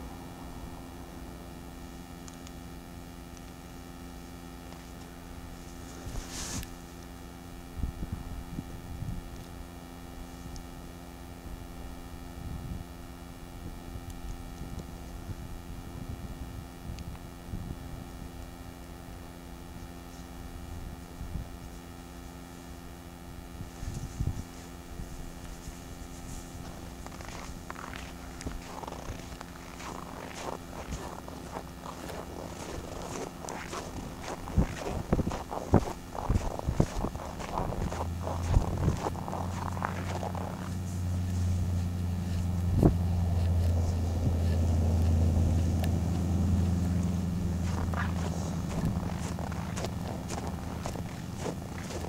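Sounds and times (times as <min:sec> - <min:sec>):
hum of held tones: 0:00.0 - 0:52.0
dull low thumps: 0:27.1 - 0:52.0.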